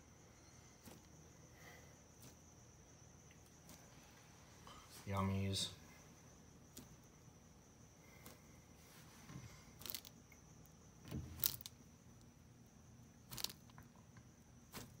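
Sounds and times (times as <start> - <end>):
lizard crunching food: 9.7 - 10.6, 11.2 - 11.8, 13.2 - 15.0.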